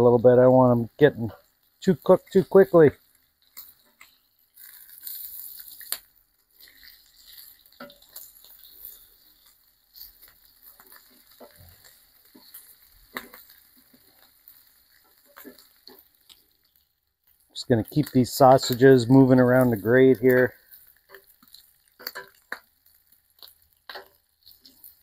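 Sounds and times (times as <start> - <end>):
food sizzling faintly on a grill: 0.0 - 25.0
metal tongs clicking on a grate: 21.1 - 22.6.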